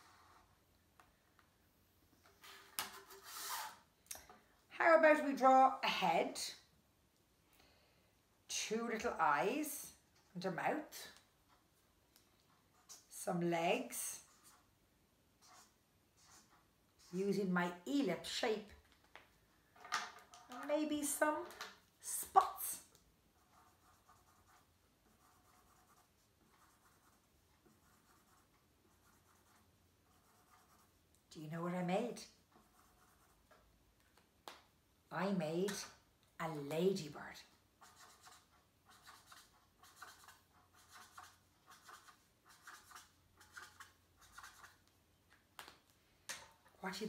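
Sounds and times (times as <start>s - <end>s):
marker strokes on paper: 0.0s - 0.6s, 2.4s - 3.9s, 12.4s - 14.7s, 15.4s - 18.1s, 22.0s - 31.1s, 32.0s - 33.6s, 37.8s - 44.9s.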